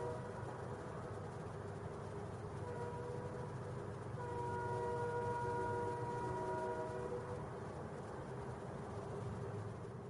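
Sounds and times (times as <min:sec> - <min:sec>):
train horn chord: 0:00.0 - 0:00.3, 0:02.6 - 0:03.4, 0:04.2 - 0:07.4.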